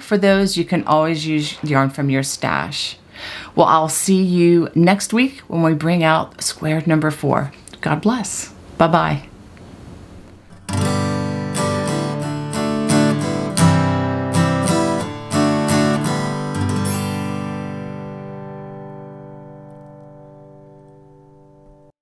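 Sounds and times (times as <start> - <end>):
acoustic guitar plucked notes: 10.4 - 21.9.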